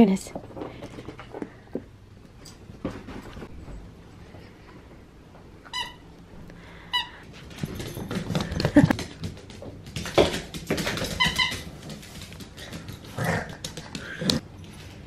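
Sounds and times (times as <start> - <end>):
squeaky dog toy squeaking: 5.6 - 6.0, 11.1 - 11.6
dog claws skittering on wood floor: 7.4 - 15.0.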